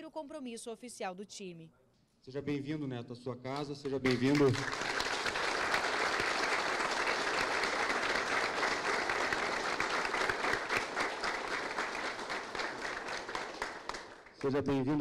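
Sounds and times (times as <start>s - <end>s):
group applauding: 3.6s - 15.0s.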